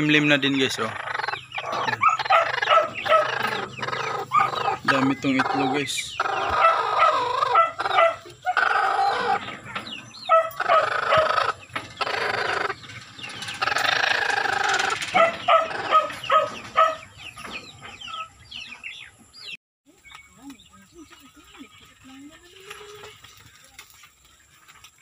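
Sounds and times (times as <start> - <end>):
hen calling: 0.0 - 19.2.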